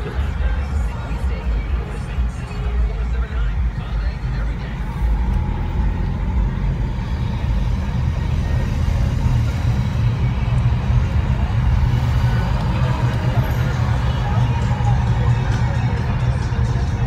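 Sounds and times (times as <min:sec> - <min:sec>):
car engine and road rumble: 0:00.0 - 0:17.0.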